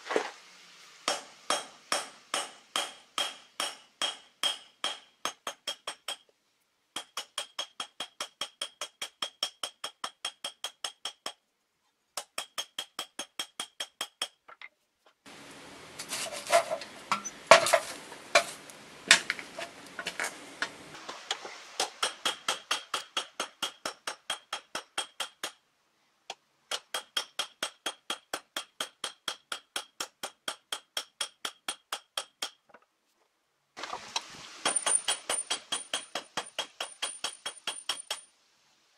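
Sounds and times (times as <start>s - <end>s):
hammer striking steel on anvil: 1.0s - 6.3s, 7.0s - 11.4s, 21.8s - 25.6s, 26.7s - 32.6s, 34.6s - 38.3s
rustling and clinks in forge fire: 15.8s - 24.4s.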